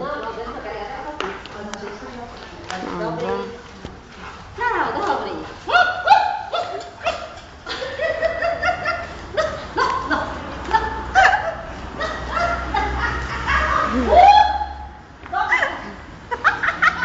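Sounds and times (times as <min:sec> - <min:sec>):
people talking: 0:00.0 - 0:06.8
people laughing: 0:05.7 - 0:14.9, 0:15.7 - 0:17.0.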